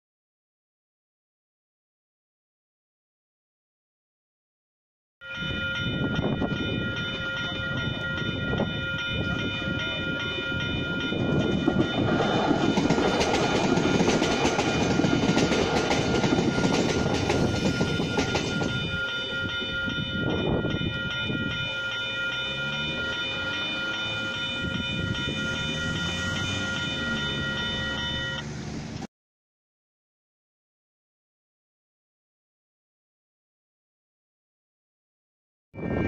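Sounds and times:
level crossing alarm bells: 0:05.2 - 0:28.5
train rumble and wheel noise: 0:05.2 - 0:29.1, 0:35.8 - 0:36.0
road vehicles passing: 0:21.2 - 0:29.1.

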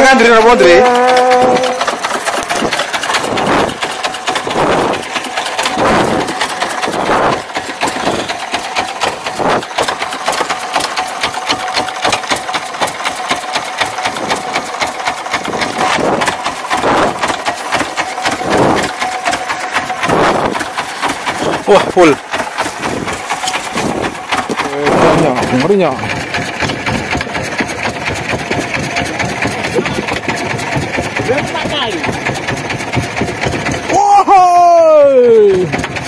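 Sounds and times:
boat engine idling with knock: 0:00.0 - 0:36.0.

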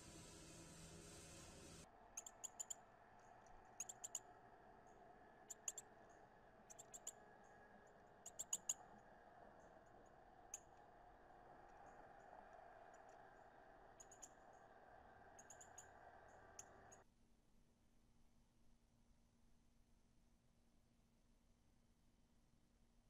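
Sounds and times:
steady hiss: 0:00.0 - 0:02.8.

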